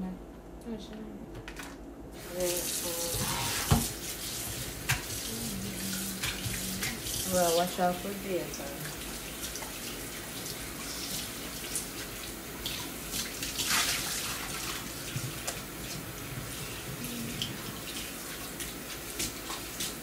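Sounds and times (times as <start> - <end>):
water splashing off dish: 2.2 - 7.9, 8.7 - 16.0
faucet running into metal sink: 2.2 - 16.8.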